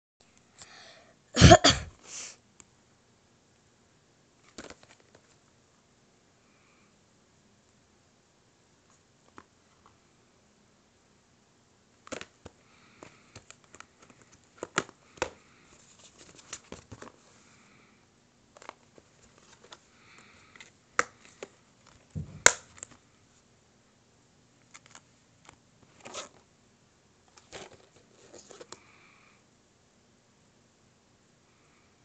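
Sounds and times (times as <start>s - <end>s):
plastic cases clicking and clacking: 12.0s - 15.4s.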